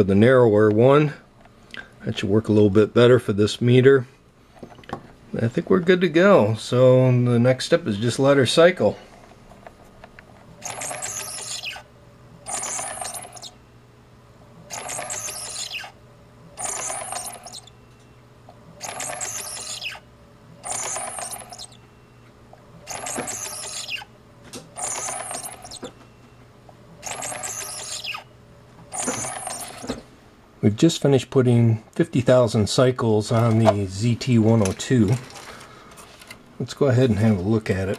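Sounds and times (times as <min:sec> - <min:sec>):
motor whine: 0:10.5 - 0:13.8, 0:14.4 - 0:30.0.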